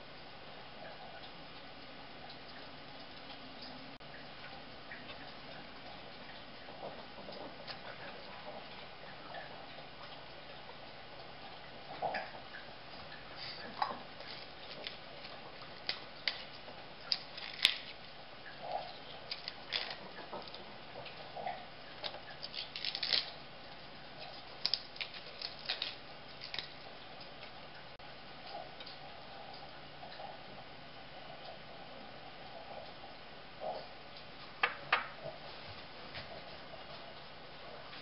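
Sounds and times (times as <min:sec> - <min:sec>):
lettuce leaves tearing: 0:17.1 - 0:18.0, 0:19.3 - 0:20.6, 0:22.0 - 0:23.4, 0:24.2 - 0:26.8.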